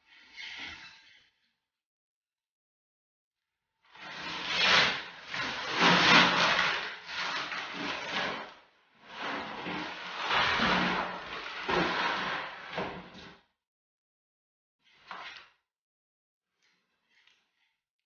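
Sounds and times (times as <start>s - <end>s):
wallpaper tearing and rustling: 4.0s - 8.5s.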